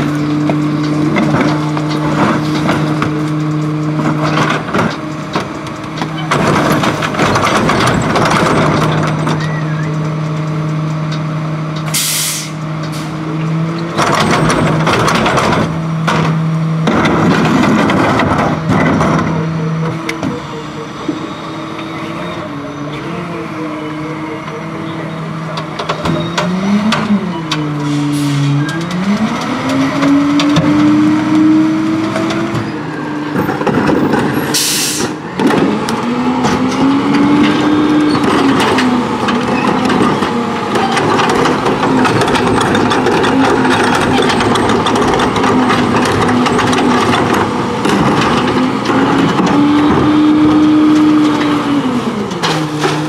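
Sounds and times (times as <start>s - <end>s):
rattle and grind: 0.0s - 12.1s, 12.7s - 20.4s, 25.2s - 53.0s
garbage truck diesel engine: 0.0s - 53.0s.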